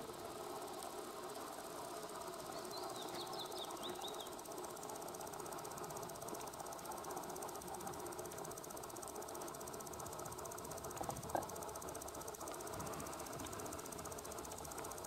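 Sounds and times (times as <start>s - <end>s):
machine hum with rapid ticking: 0.0s - 15.0s
high warbling bird song: 2.5s - 4.4s.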